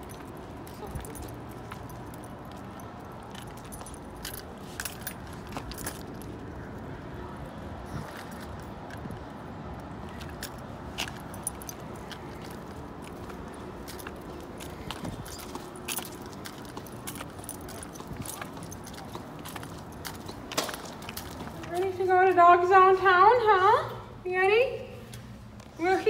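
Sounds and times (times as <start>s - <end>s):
dog collar tags jingling: 0.0s - 6.5s, 10.1s - 22.0s.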